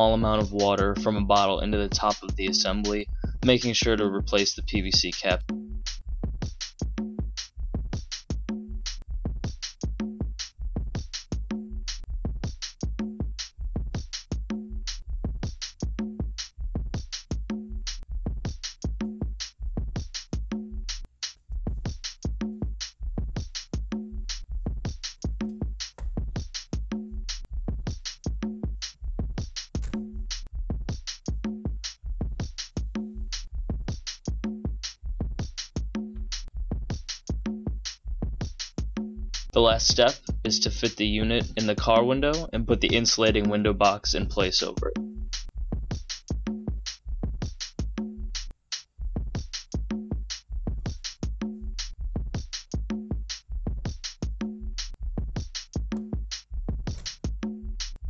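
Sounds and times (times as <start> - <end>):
electronic music: 0.0 - 5.4, 39.6 - 45.1
drum machine beat: 0.0 - 58.0.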